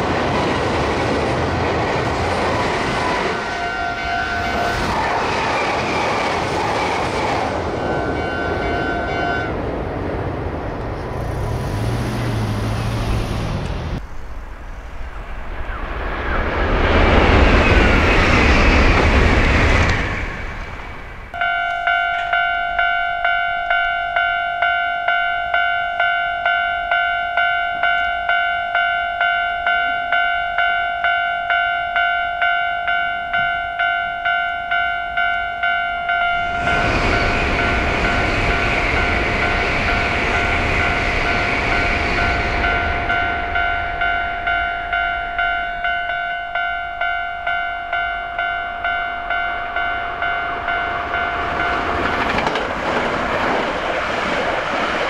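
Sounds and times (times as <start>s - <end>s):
train passing: 0.0s - 55.0s
level crossing bell ringing: 21.4s - 38.2s, 39.0s - 52.3s.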